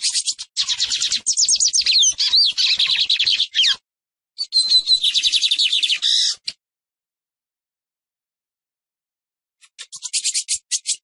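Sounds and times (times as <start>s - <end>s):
bird singing high repeated notes: 0.0s - 3.8s, 4.4s - 6.4s.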